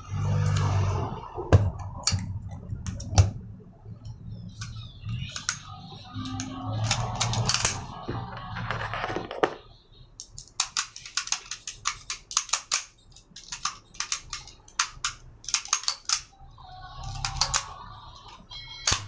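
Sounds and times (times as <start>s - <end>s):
pistol parts clicking and clacking: 10.2s - 16.3s.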